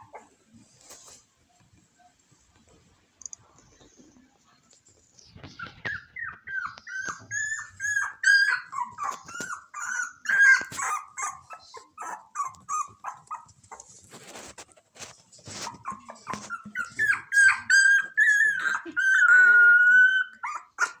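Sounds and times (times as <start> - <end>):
puppy whining and yipping: 5.5 - 13.8, 15.5 - 21.0.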